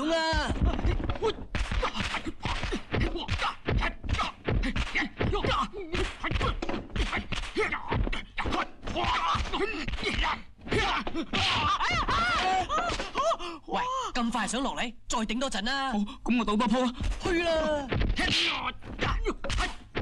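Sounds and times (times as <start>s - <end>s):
fighters grunting: 0.0s - 13.4s
punch and block whacks: 0.5s - 13.2s, 17.0s - 20.0s.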